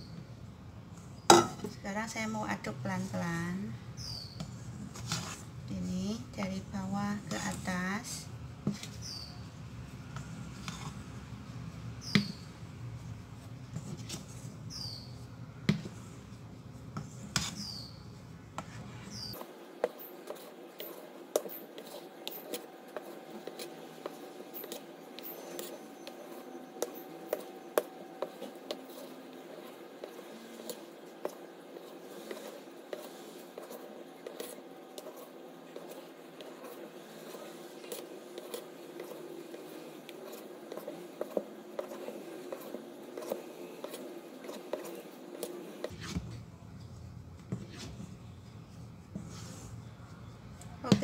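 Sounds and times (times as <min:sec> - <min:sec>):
batter squelching: 0:01.0 - 0:46.2
spatula scraping metal bowl: 0:04.0 - 0:06.6, 0:10.2 - 0:11.0, 0:17.1 - 0:17.9, 0:18.6 - 0:46.2.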